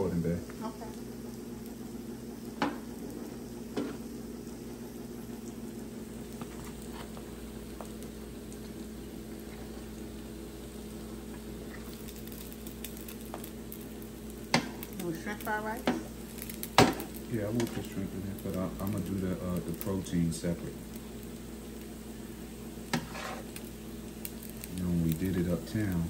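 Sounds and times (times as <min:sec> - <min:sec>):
fried rice sizzling on a griddle: 0:00.0 - 0:26.0
steady low hum: 0:00.0 - 0:26.0
utensil clicking against griddle: 0:15.8 - 0:17.9.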